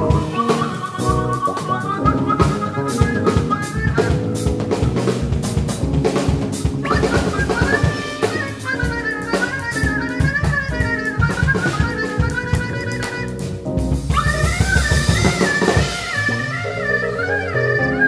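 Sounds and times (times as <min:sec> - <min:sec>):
drum kit: 0:00.0 - 0:18.0
jazz fusion band playing: 0:00.0 - 0:18.0
trumpet lead melody: 0:06.6 - 0:18.0.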